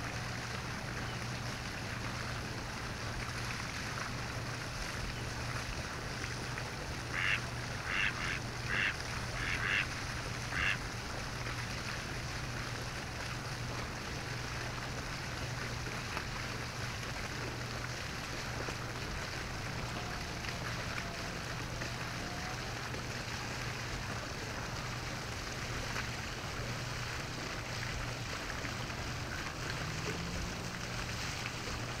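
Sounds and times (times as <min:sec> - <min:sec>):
duck calling: 0:07.1 - 0:09.9, 0:10.5 - 0:10.8.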